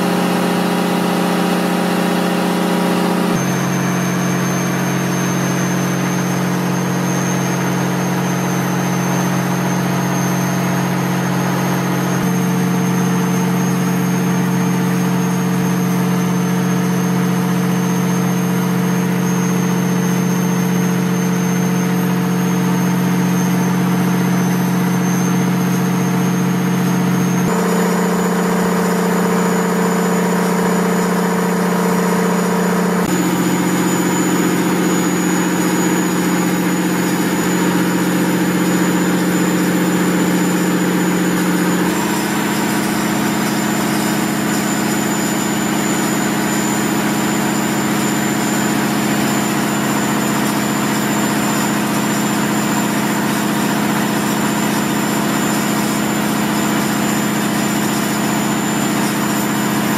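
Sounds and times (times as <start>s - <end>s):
machinery humming: 0.0s - 14.8s, 27.1s - 59.6s
thin high whine: 0.0s - 59.9s.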